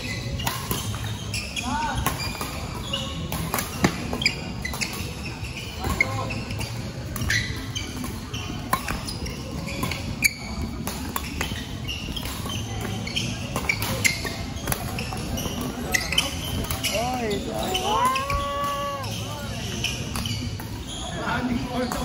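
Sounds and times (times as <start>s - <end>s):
shoes squeaking on court floor: 0.0s - 22.0s.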